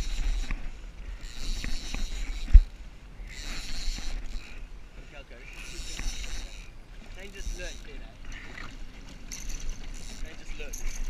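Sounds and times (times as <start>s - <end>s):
water washing against jet ski: 3.6s - 11.0s.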